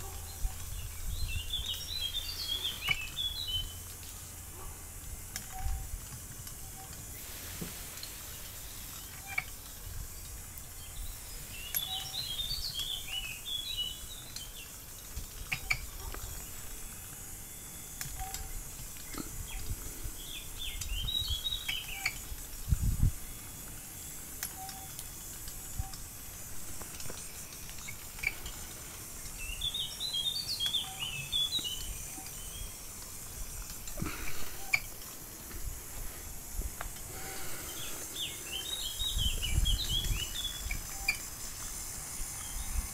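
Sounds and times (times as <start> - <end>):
songbird chirping: 0.0 - 42.9
scattered clicks: 17.9 - 19.3, 23.6 - 29.5.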